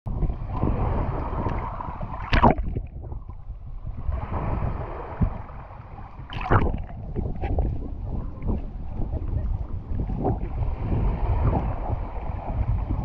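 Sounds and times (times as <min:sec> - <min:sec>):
waves sloshing and gurgling: 0:00.1 - 0:13.0
water splash: 0:00.6 - 0:03.5, 0:06.2 - 0:07.6.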